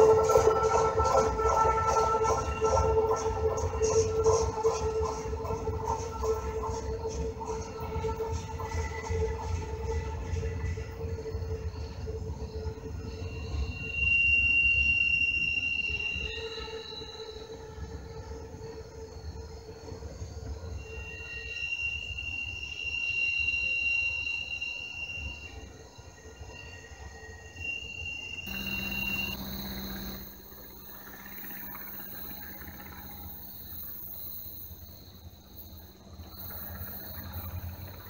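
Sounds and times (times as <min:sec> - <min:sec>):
train low rumble: 0:00.0 - 0:24.6, 0:28.5 - 0:38.0
train wheels squealing: 0:00.0 - 0:38.0.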